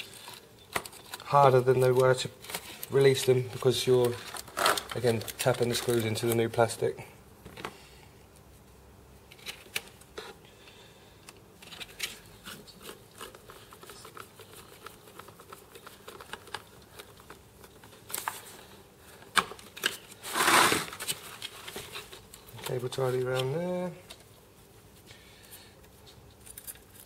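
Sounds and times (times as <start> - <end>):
plastic rustling: 0.0 - 6.6, 11.6 - 24.3.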